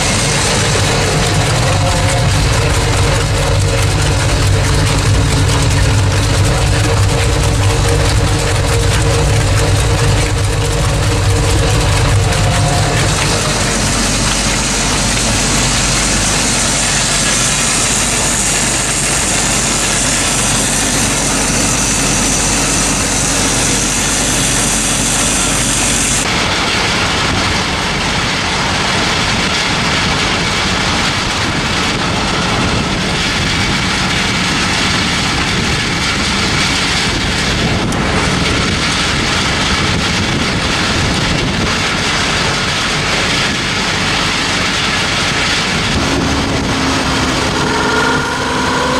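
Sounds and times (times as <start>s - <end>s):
engine and pump running: 0.0s - 48.9s
high hiss: 10.3s - 26.2s.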